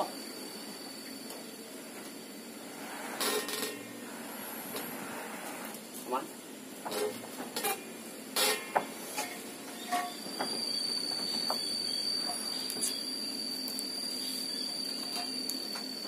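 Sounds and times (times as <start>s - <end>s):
high whine of saw blade: 9.6s - 16.0s.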